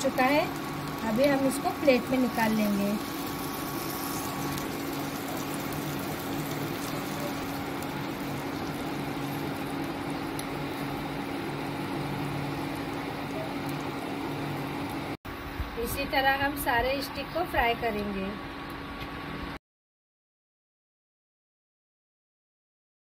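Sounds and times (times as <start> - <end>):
chicken sizzling in hot oil: 0.0 - 15.2.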